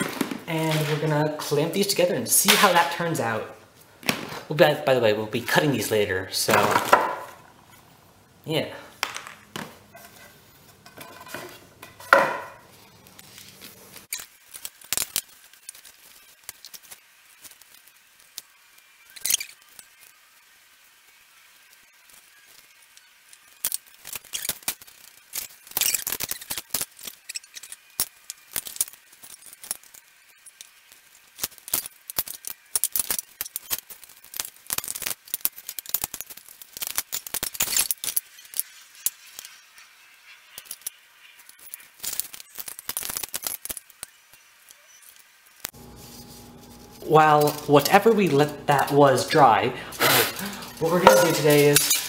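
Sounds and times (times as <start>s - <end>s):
wooden boards knocking: 6.5s - 7.4s, 11.3s - 12.6s.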